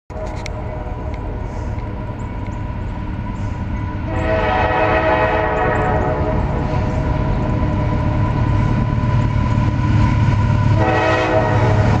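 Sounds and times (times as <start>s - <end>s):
train horn: 4.0s - 6.8s, 10.7s - 12.0s.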